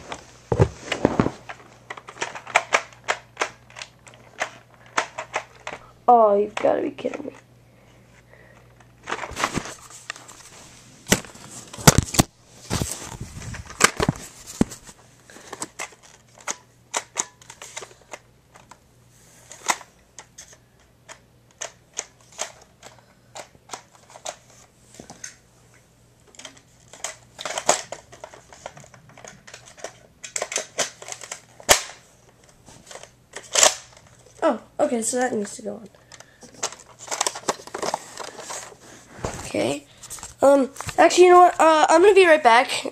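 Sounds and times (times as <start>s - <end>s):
plastic parts clicking and rattling: 0.5s - 5.9s, 6.5s - 7.4s, 8.5s - 10.3s, 11.1s - 18.8s, 19.4s - 25.4s, 26.2s - 34.4s, 35.4s - 38.8s.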